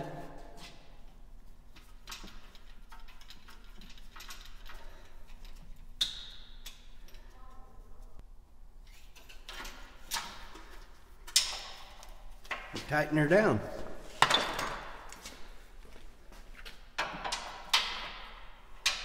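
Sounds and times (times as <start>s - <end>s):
metallic clicks of screw and tool: 1.8s - 7.3s.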